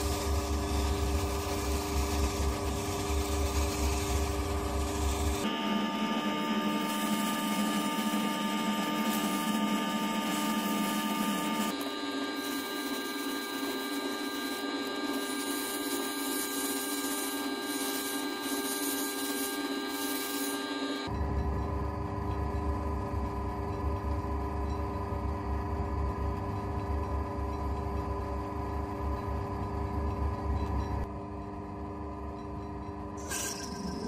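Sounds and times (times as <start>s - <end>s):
sanding spinning metal workpiece: 0.0s - 21.1s
lathe humming: 0.0s - 31.1s.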